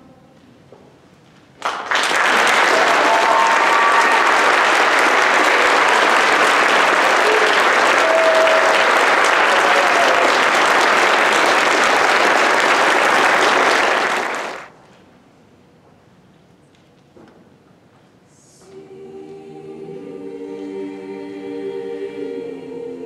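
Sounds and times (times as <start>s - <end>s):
faint room noise: 0.0s - 23.0s
audience applauding: 1.6s - 14.7s.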